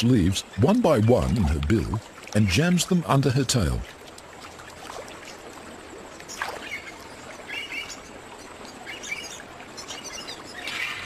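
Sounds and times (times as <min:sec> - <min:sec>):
river water trickling and lapping: 0:00.0 - 0:11.0
bird chirps: 0:06.3 - 0:11.0.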